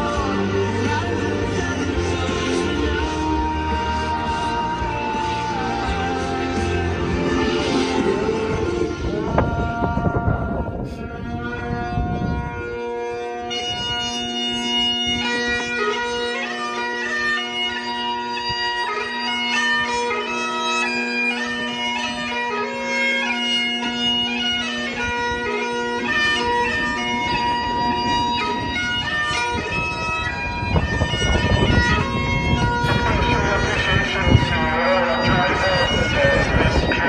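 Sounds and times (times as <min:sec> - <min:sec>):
bagpipes playing slow tune: 0:00.0 - 0:37.0
rushing noise: 0:24.4 - 0:37.0.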